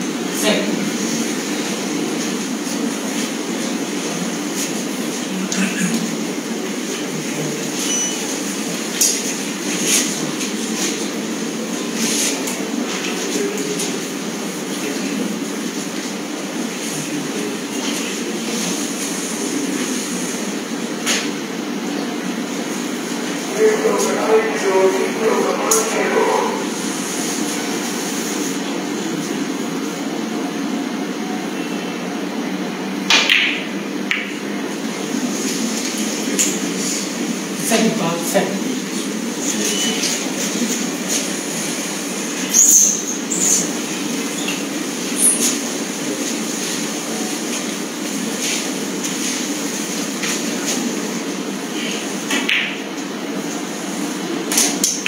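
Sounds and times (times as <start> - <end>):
hall background hum: 0.0 - 55.0
low rumbling hall noise: 11.1 - 31.2.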